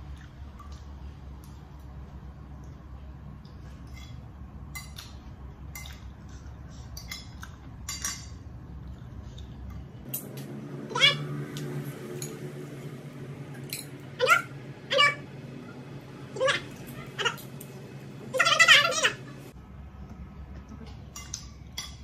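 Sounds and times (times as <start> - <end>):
low hum: 8.4 - 21.8.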